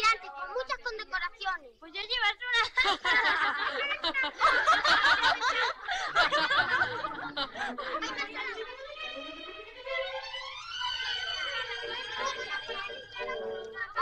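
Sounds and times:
people laughing: 2.6s - 9.7s
soft string music: 6.2s - 14.0s.

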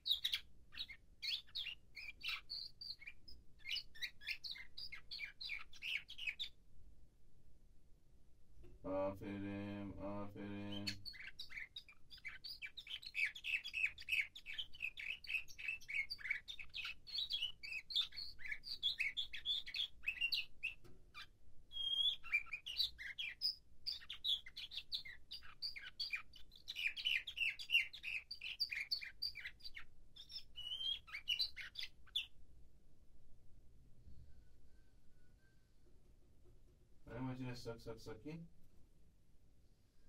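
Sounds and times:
canary singing: 0.0s - 6.6s, 8.9s - 32.4s, 34.1s - 36.0s.

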